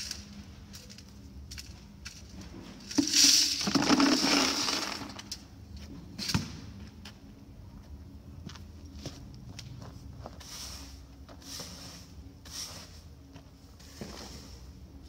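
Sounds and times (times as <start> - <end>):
grit pouring into plastic tub: 3.1 - 5.0.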